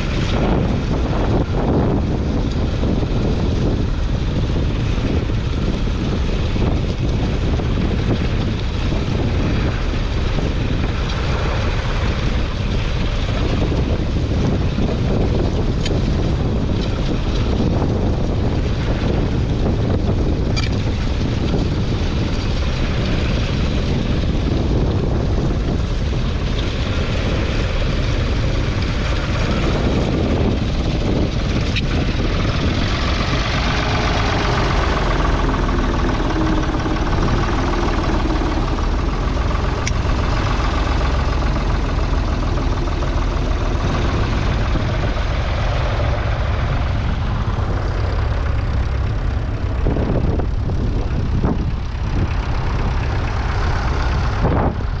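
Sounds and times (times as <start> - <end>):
tractor diesel engine running: 0.0 - 55.0.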